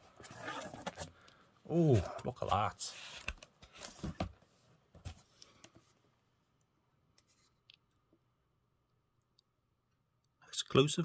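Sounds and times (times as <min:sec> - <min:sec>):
book and cardboard handling: 0:00.0 - 0:01.2, 0:01.8 - 0:06.0.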